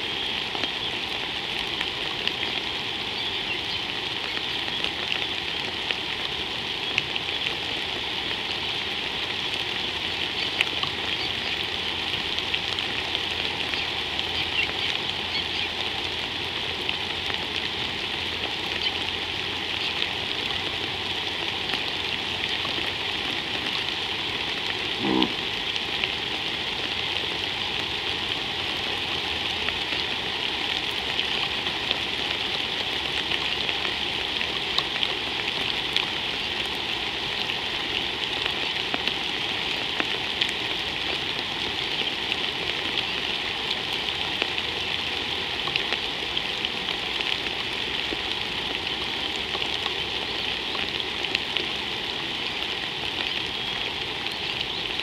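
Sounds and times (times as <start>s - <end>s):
rain falling on river: 0.0s - 55.0s
brief pitched sound: 25.0s - 25.4s.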